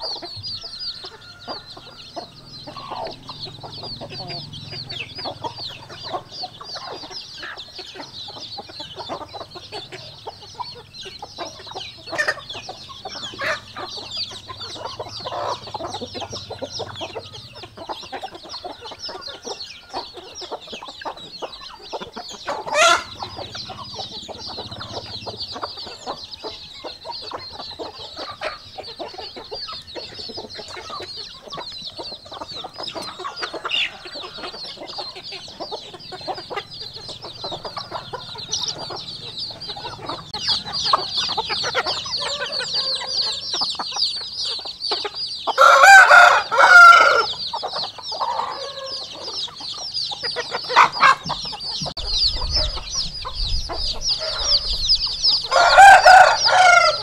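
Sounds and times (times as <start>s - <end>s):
chicks peeping: 0.0s - 57.0s
chicken call: 11.4s - 29.4s, 55.4s - 57.0s.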